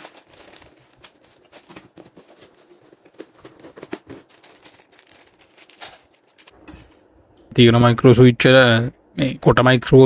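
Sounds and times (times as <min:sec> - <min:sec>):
plastic bags crinkling: 0:00.0 - 0:06.6.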